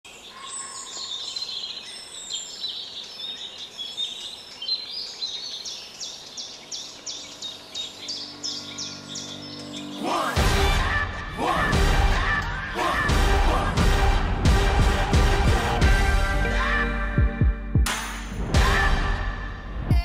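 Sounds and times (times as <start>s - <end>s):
songbirds chirping and trilling: 0.0s - 10.8s.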